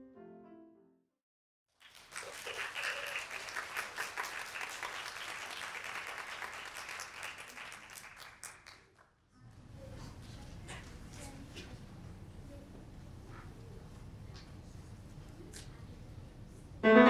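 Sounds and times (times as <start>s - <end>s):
audience applauding: 1.7s - 9.1s.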